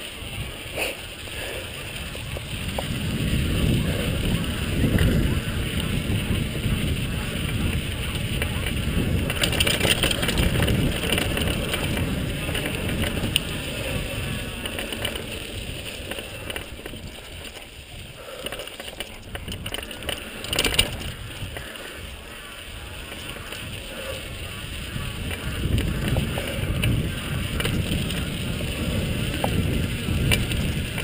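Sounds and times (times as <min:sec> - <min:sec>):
bike tyres rolling on dirt: 0:00.0 - 0:31.0
wind buffeting microphone: 0:00.0 - 0:31.0
sharp clatter: 0:08.4 - 0:14.0, 0:18.4 - 0:21.1.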